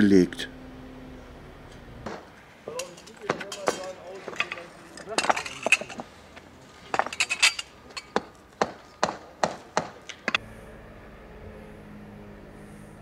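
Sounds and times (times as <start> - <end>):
steady low hum: 0.0 - 13.0
concrete blocks clacking together: 2.7 - 6.1, 6.8 - 10.4.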